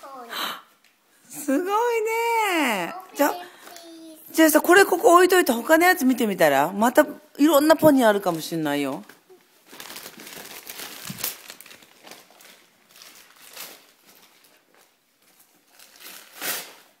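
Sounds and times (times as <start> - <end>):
wrapping paper rustling: 8.2 - 17.0.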